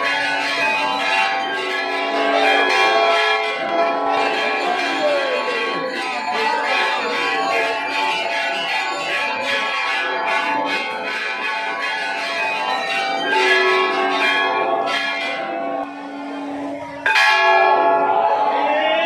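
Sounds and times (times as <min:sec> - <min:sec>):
brass bells ringing: 0:00.0 - 0:19.0.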